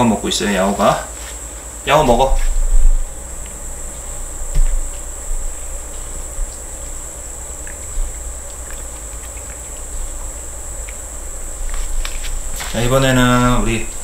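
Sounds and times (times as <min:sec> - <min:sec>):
steady high-pitched whine: 0:00.0 - 0:14.0.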